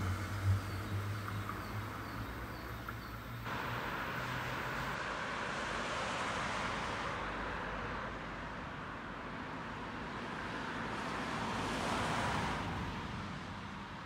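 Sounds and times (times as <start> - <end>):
vehicle low hum: 0.0 - 8.1
rolling road hiss: 0.0 - 8.6.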